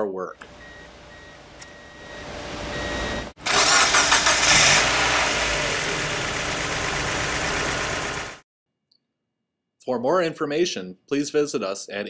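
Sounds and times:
car engine starting and idling: 0:00.5 - 0:08.4.

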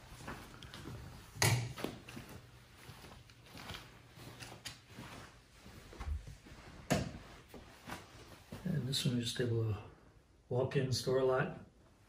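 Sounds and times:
soft knocks and handling noises: 0:00.2 - 0:08.7.

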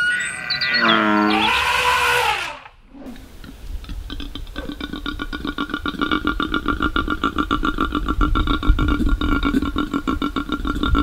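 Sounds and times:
koala bellowing: 0:00.0 - 0:03.4
animal calls: 0:00.0 - 0:11.0.

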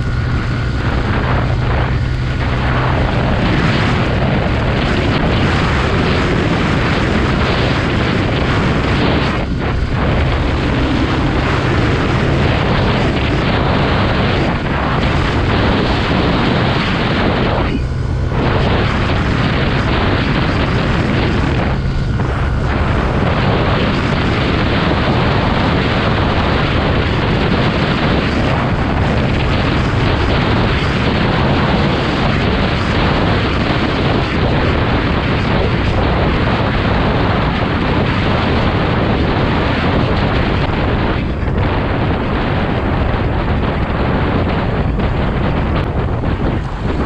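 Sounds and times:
scooter engine: 0:00.0 - 0:35.0
road noise: 0:00.0 - 0:47.0
wind buffeting microphone: 0:00.0 - 0:47.0.

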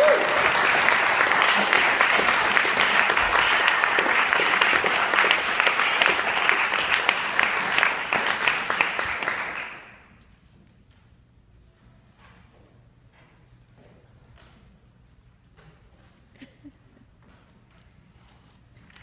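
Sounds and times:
audience applauding: 0:00.0 - 0:10.1.

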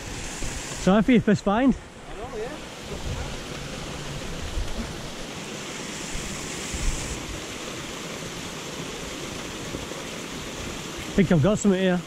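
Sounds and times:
waterfall rushing over weir: 0:00.0 - 0:12.0.

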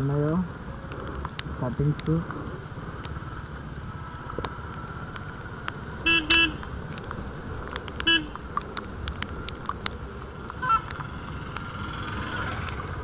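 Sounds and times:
motorcycle engine rumble: 0:00.0 - 0:13.0
raindrops ticking on camera: 0:00.0 - 0:13.0
road and wind noise: 0:00.0 - 0:13.0
vehicle horn honking: 0:06.0 - 0:06.6, 0:08.1 - 0:08.4.

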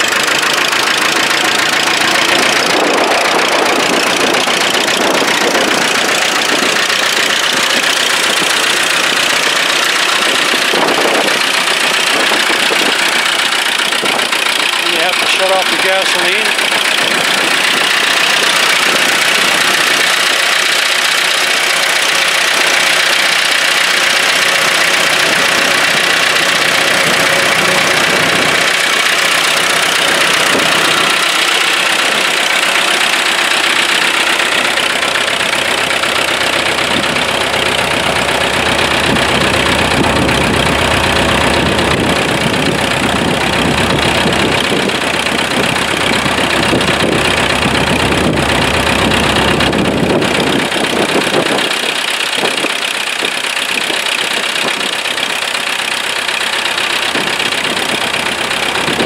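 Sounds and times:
crawler engine idling: 0:00.0 - 0:59.0.

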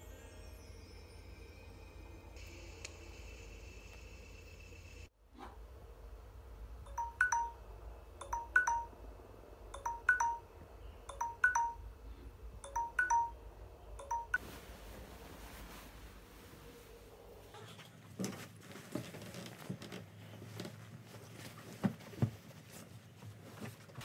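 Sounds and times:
electronic two-note chime: 0:06.9 - 0:07.6, 0:08.2 - 0:08.9, 0:09.8 - 0:10.4, 0:11.1 - 0:11.8, 0:12.6 - 0:13.4, 0:14.0 - 0:14.4.

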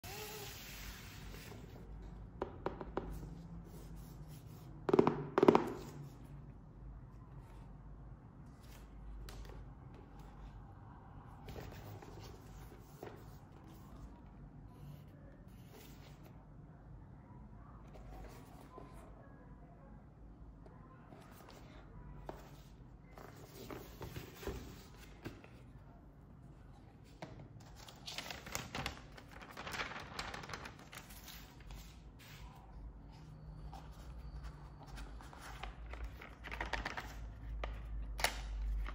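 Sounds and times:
tissue paper rustling: 0:27.9 - 0:32.5.

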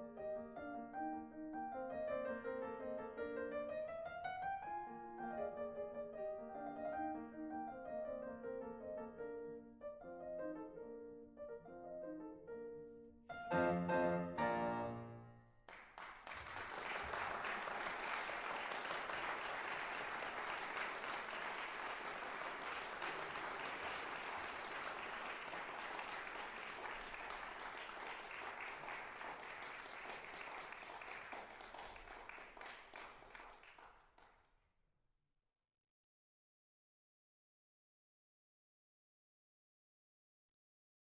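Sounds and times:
piano music: 0:00.0 - 0:15.6
audience applause: 0:15.7 - 0:34.3.

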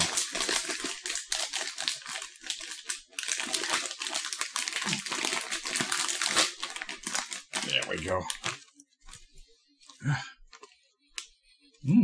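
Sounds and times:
snack packet crinkling: 0:00.0 - 0:09.3.

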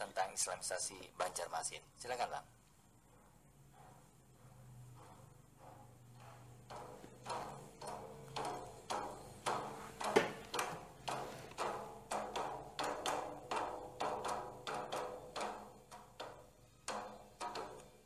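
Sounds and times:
hollow woody percussive knocks: 0:03.7 - 0:18.0.

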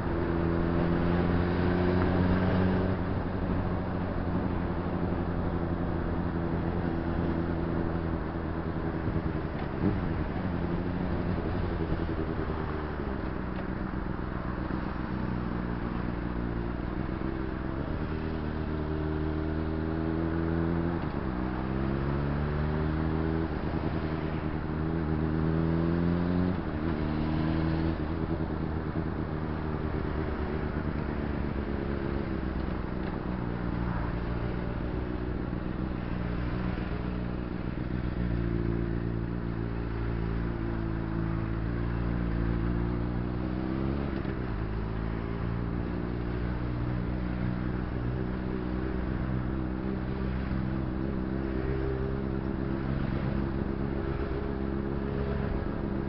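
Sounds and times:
road and wind noise: 0:00.0 - 0:56.0
motorcycle engine revving: 0:14.6 - 0:56.0.

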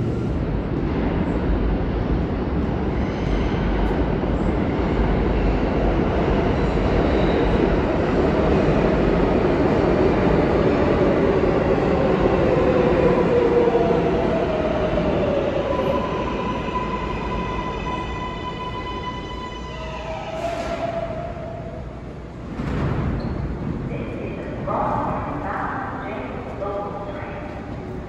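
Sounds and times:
train wheels rumbling on rail: 0:00.0 - 0:28.0.

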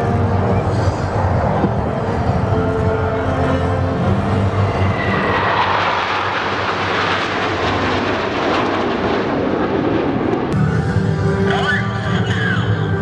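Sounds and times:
jets roaring overhead: 0:00.0 - 0:13.0.

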